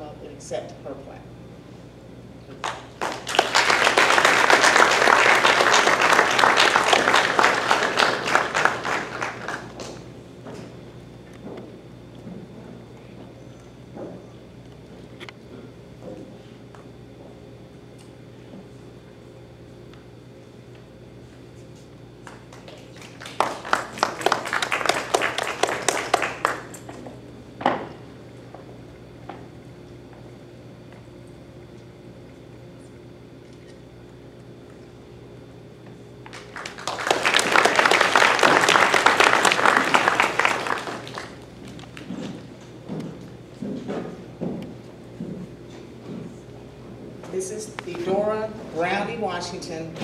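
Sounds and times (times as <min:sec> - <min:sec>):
audience applauding: 0:02.6 - 0:10.0, 0:22.3 - 0:26.8, 0:36.2 - 0:42.1.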